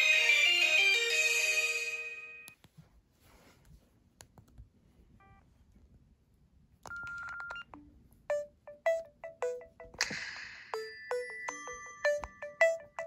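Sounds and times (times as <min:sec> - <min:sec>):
ringtone melody: 0:00.0 - 0:02.5, 0:07.8 - 0:13.0
phone keypad beeps: 0:06.9 - 0:10.0.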